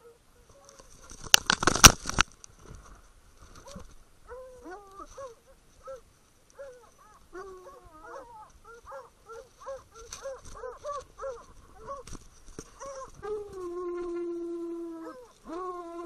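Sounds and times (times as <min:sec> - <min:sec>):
hounds baying: 0:03.6 - 0:12.1, 0:12.7 - 0:16.0.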